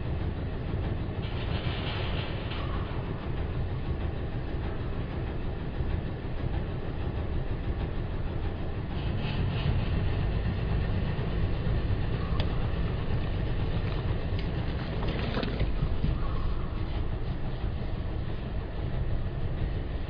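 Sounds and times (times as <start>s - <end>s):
truck engine rumbling: 6.3s - 20.0s.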